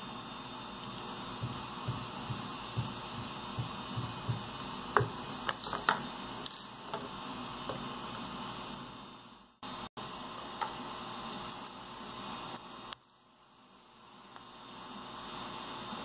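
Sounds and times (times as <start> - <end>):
steady background hum: 0.0 - 16.0
soft low thuds: 1.4 - 5.2.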